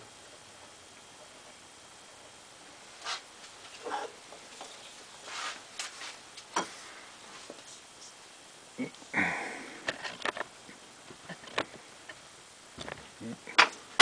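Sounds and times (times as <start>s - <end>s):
scraping rustle: 3.0s - 8.2s.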